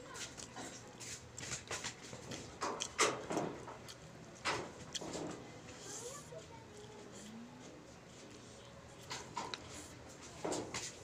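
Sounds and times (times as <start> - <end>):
chewing with small clicks: 1.4 - 5.2.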